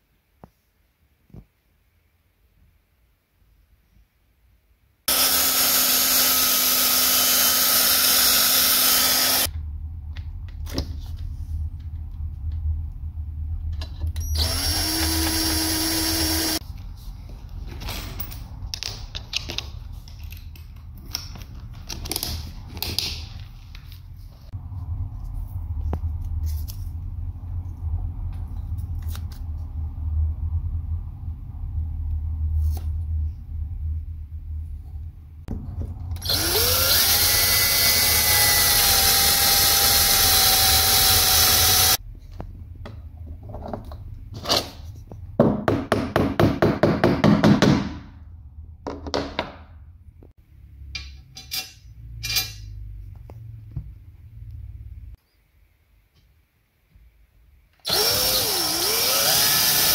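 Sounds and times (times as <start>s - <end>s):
cordless drill drilling into wood: 5.1s - 9.5s, 14.4s - 16.6s, 36.2s - 42.0s, 57.9s - 59.9s
low rumble: 9.5s - 15.5s, 24.0s - 36.2s.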